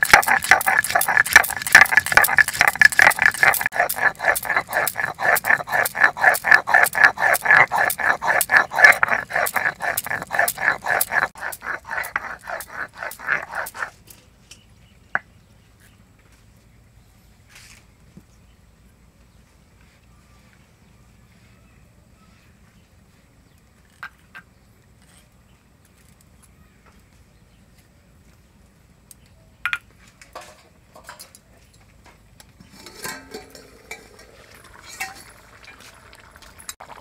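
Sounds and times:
stone scraping on grinding stone: 0:00.0 - 0:14.0, 0:32.6 - 0:36.8.

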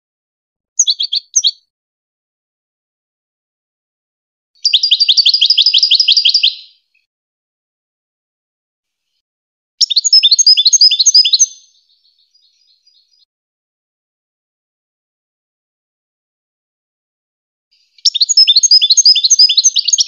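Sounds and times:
goldfinch singing trilled phrases: 0:00.8 - 0:01.7, 0:04.6 - 0:06.8, 0:09.8 - 0:13.3, 0:17.9 - 0:20.0.

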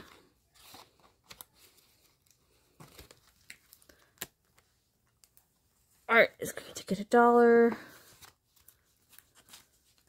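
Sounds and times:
paper bills and envelopes rustling: 0:00.0 - 0:05.5, 0:07.8 - 0:10.0.

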